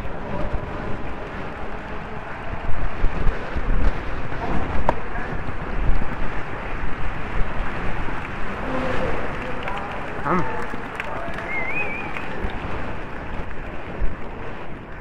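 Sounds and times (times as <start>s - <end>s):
wind rushing over microphone: 0.0s - 15.0s.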